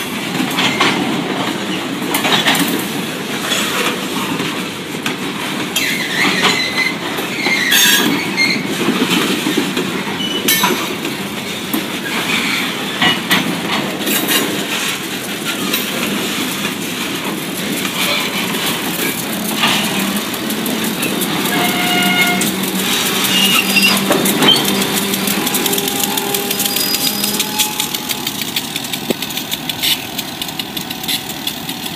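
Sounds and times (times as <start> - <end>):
train wheels clanking over rail joints: 0.0 - 31.9
metallic wheel squeals: 5.8 - 8.8, 10.2 - 10.8, 18.0 - 29.2
diesel locomotive hum: 6.9 - 31.9.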